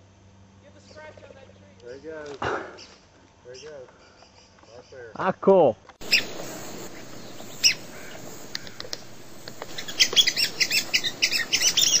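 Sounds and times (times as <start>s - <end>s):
birds chirping: 2.7s - 5.3s, 6.0s - 12.0s.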